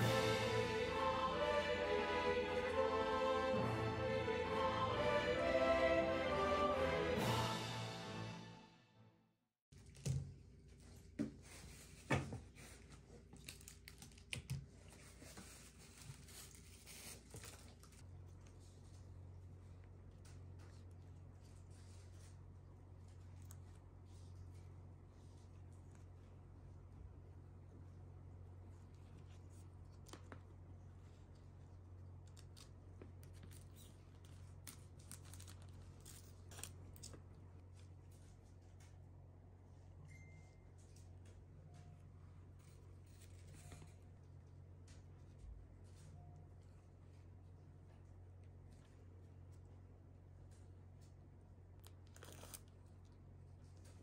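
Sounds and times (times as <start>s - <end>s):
low steady hum: 0.0s - 8.4s
paper and plastic crinkling: 10.8s - 19.1s, 32.2s - 38.9s.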